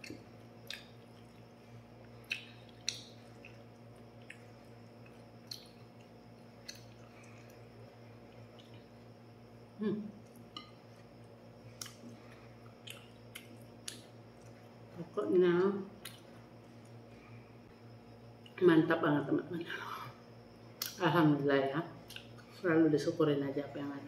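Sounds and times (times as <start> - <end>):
soft chewing and mouth sounds: 0.0 - 9.2, 10.1 - 18.6, 22.0 - 22.6
steady low hum: 0.0 - 24.0.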